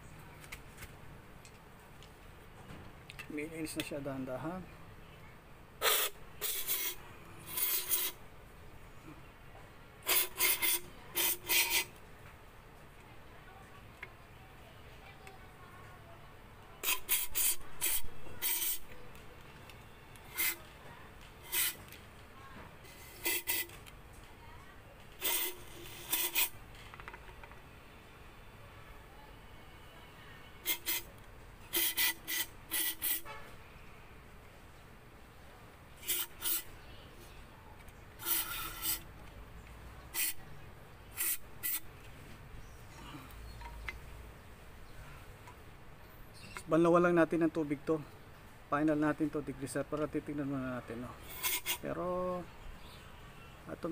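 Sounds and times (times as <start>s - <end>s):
aerosol spray hissing bursts: 5.8s - 8.2s, 10.0s - 11.9s, 16.8s - 18.9s, 20.3s - 20.6s, 21.4s - 21.8s, 22.9s - 23.7s, 25.2s - 26.6s, 30.6s - 31.1s, 31.7s - 33.3s, 36.0s - 36.7s, 38.2s - 39.0s, 40.1s - 40.4s, 41.2s - 41.8s.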